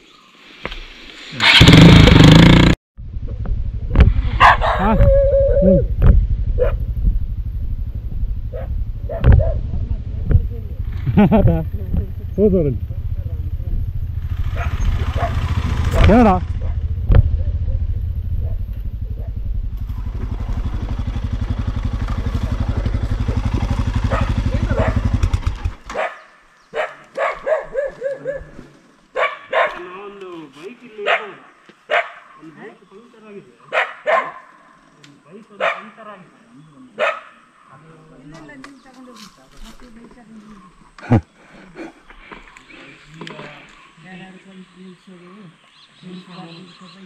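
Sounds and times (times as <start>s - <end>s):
motorcycle engine running: 1.5s - 25.9s
dog barking and whining: 4.4s - 5.9s, 6.6s - 6.8s, 8.5s - 9.6s, 25.9s - 28.6s, 29.2s - 29.8s, 33.7s - 34.6s.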